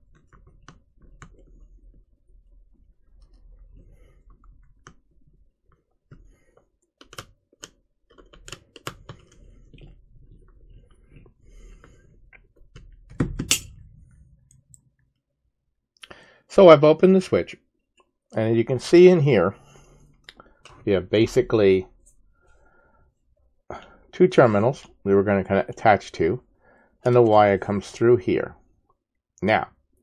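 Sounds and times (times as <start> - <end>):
small clicks and scrapes: 0.0 - 13.2.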